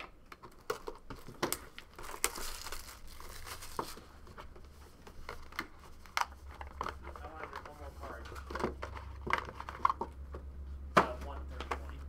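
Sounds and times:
wrapping crinkling and tearing: 0:00.4 - 0:04.2.

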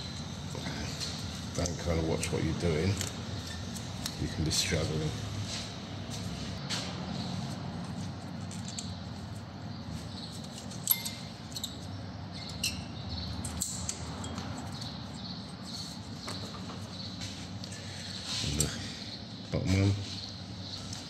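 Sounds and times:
low background hum: 0:00.0 - 0:21.0
metallic clicks and scrapes: 0:07.8 - 0:09.0.

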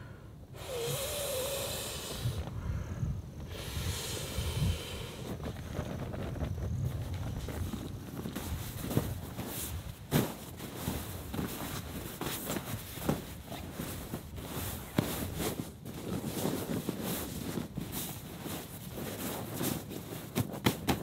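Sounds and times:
crunching and knocking: 0:05.4 - 0:18.1, 0:18.8 - 0:21.0.

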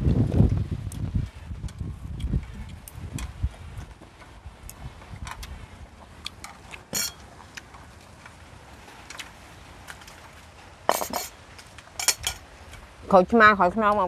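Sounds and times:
dishes clattering: 0:06.9 - 0:07.2, 0:10.9 - 0:11.4.

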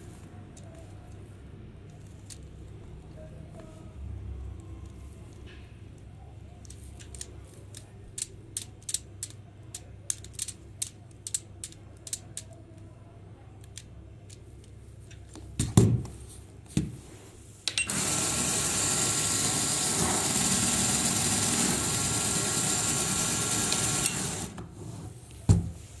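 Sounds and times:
plastic clicks: 0:05.3 - 0:12.8.

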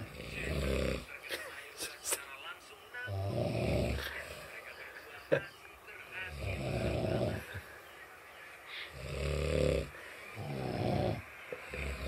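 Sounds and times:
people snoring: 0:00.0 - 0:01.2, 0:03.1 - 0:04.7, 0:06.1 - 0:07.7, 0:08.7 - 0:12.0.

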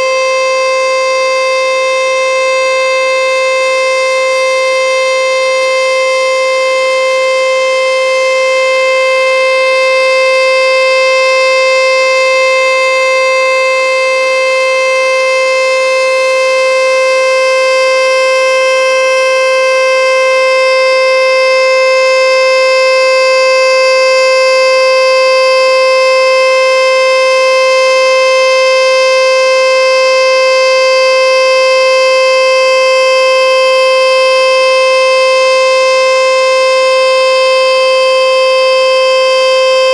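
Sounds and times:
warning siren steady tone: 0:00.0 - 0:39.9.

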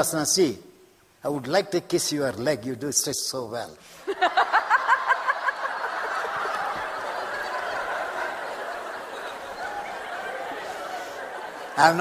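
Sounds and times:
audience laughing: 0:04.0 - 0:12.0.

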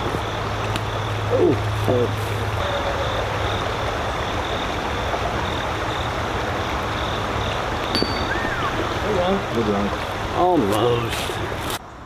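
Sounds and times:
creek rushing: 0:00.0 - 0:11.8
faint high chirp: 0:07.9 - 0:08.8.

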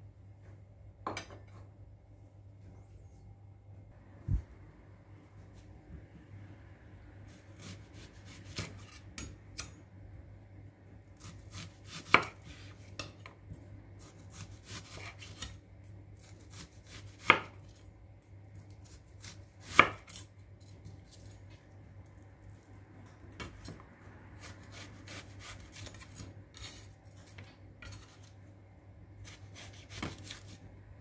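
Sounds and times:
knife slicing onion: 0:07.3 - 0:09.8, 0:11.2 - 0:13.3, 0:14.0 - 0:15.6, 0:16.2 - 0:17.8, 0:18.6 - 0:21.4, 0:24.4 - 0:28.4, 0:29.2 - 0:30.7.

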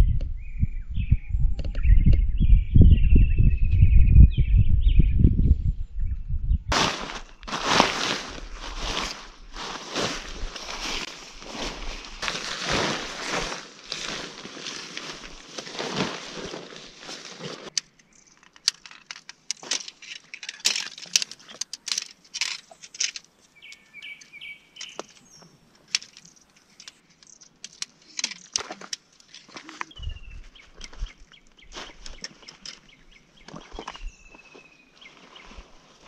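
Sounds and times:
tent fabric rustling: 0:06.7 - 0:17.8
tent poles snapping together: 0:06.7 - 0:29.9
bird chirping: 0:17.7 - 0:18.7, 0:22.6 - 0:28.5, 0:29.4 - 0:35.8.

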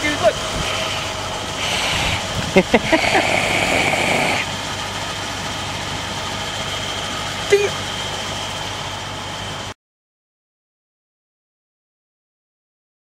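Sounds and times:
engine idling: 0:00.0 - 0:09.8
even hiss: 0:00.6 - 0:04.6.

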